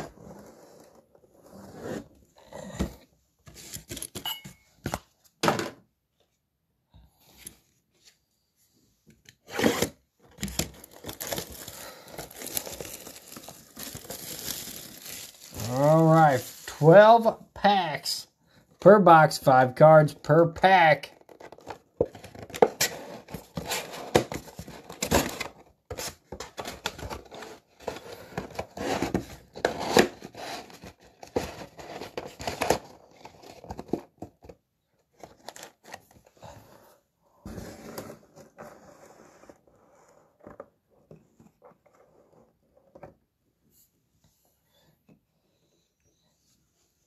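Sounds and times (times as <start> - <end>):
cardboard tearing and crackling: 9.5 - 16.6.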